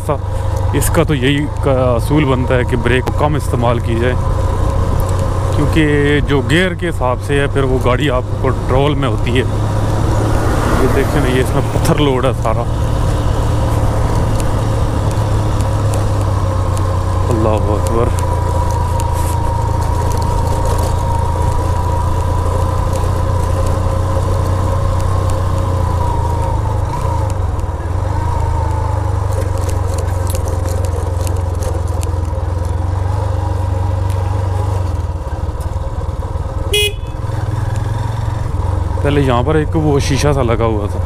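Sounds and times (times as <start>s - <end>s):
motorcycle engine rumble: 0.0s - 41.0s
horn toot: 36.7s - 37.3s.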